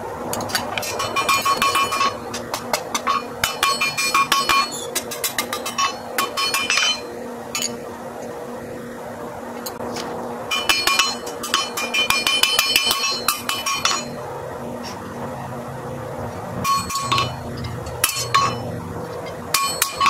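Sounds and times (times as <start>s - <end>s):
hammer striking metal on anvil: 0.4s - 7.8s, 10.5s - 14.2s, 16.6s - 20.0s.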